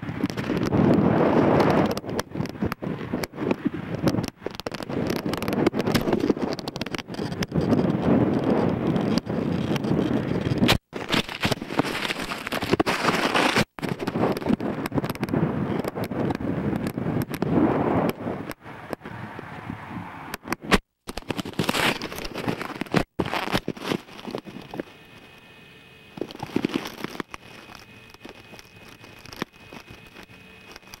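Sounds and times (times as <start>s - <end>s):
wind buffeting microphone: 0.0s - 25.2s
rustling and knocks in grass: 20.6s - 24.9s
faint steady tone: 23.2s - 31.0s.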